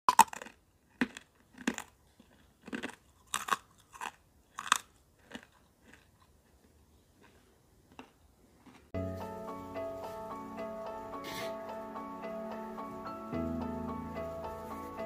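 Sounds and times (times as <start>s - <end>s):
biscuit crunching: 0.1s - 9.0s.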